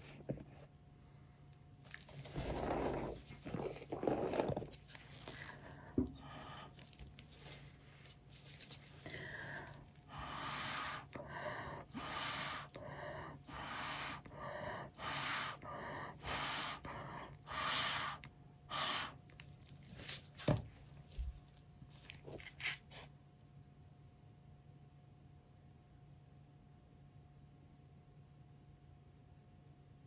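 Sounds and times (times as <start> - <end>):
puffs of breath through straw: 9.0 - 12.9, 13.5 - 19.3.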